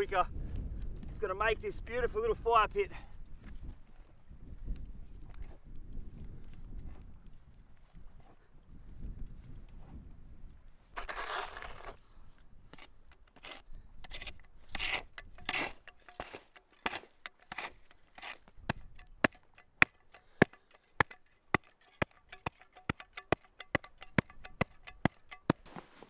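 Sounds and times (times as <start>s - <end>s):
shovel scraping dirt: 10.9s - 12.0s, 12.7s - 26.0s
shovel blade striking clay: 12.7s - 25.8s.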